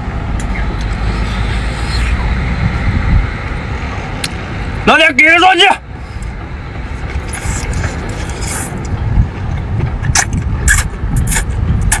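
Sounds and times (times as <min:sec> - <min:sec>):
steady low rumble: 0:00.0 - 0:12.0
wet slurping: 0:07.3 - 0:08.9, 0:10.1 - 0:12.0.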